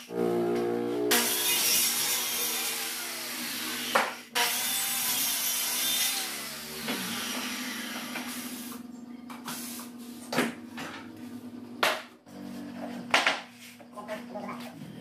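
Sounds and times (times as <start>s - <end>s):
circular saw cutting plywood: 0.0s - 8.9s
saw spinning down: 1.1s - 8.8s.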